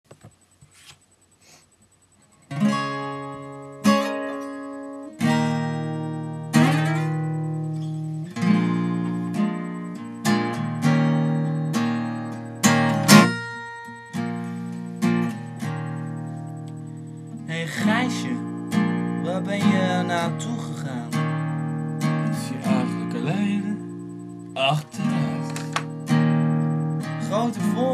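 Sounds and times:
acoustic guitar chords strummed: 0:02.2 - 0:27.9
guitar handling clicks: 0:25.4 - 0:26.0.

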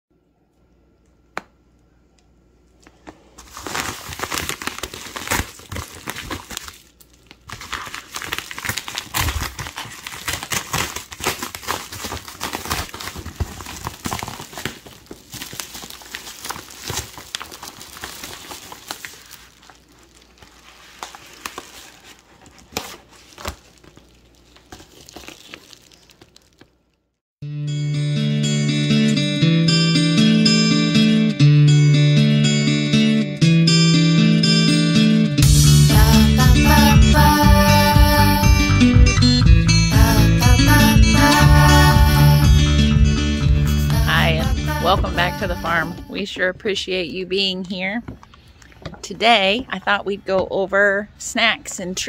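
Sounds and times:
padded envelope tearing and crumpling: 0:03.4 - 0:27.0.

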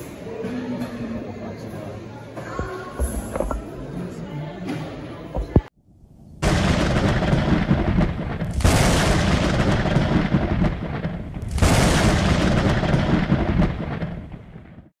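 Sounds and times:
rolling thunderclaps: 0:06.4 - 0:14.9.

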